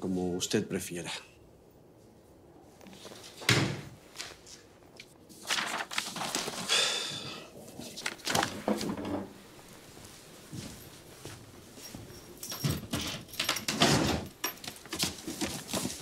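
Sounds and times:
handling sounds: 7.7s - 16.0s.

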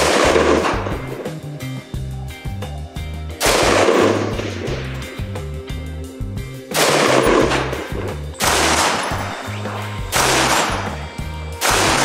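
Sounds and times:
rifle shots cracking: 0.0s - 1.1s, 3.4s - 4.8s, 6.7s - 12.0s
background music with bass: 0.0s - 12.0s.

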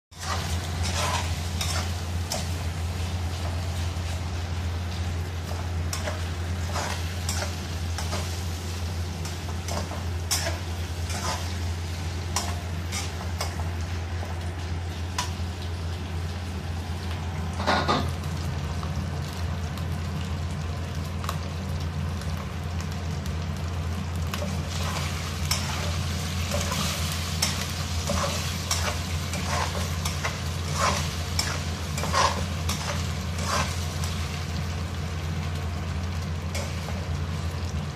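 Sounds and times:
meat sizzling in a wok: 0.1s - 37.9s
steady low hum: 0.1s - 37.9s
spatula scraping and clicking on wok: 0.2s - 2.7s, 5.4s - 8.5s, 9.2s - 11.6s, 12.3s - 13.7s, 24.3s - 34.3s, 36.5s - 37.0s.

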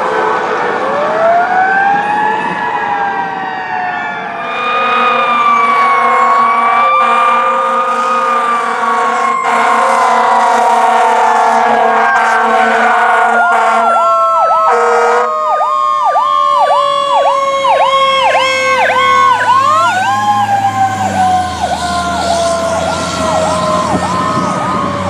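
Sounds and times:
electronic siren yelping: 1.2s - 25.0s
air horn blast: 4.4s - 14.0s, 14.7s - 15.3s
diesel engine rumbling: 15.4s - 25.0s.

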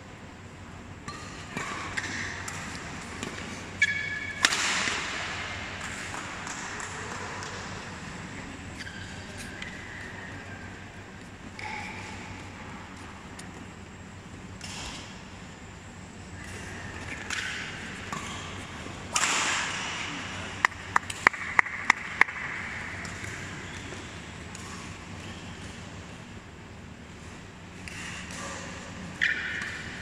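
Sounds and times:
rackets striking shuttlecock: 1.0s - 10.2s, 16.3s - 26.0s, 27.8s - 30.0s
shoes squeaking on court: 8.4s - 13.8s.

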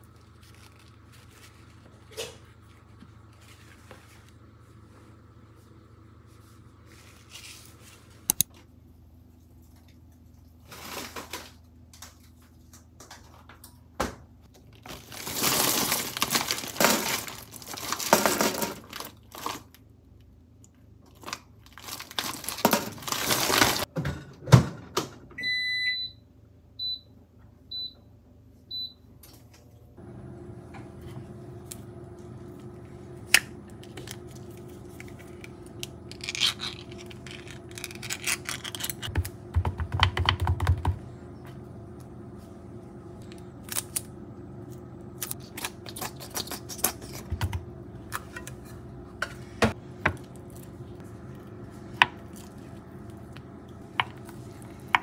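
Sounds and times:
plastic bag crinkling: 0.0s - 2.2s, 14.6s - 19.8s, 21.1s - 23.9s, 34.0s - 39.1s
appliance hum: 0.0s - 55.0s
appliance electronic beeps: 25.4s - 26.2s, 26.8s - 28.1s, 28.7s - 29.1s.

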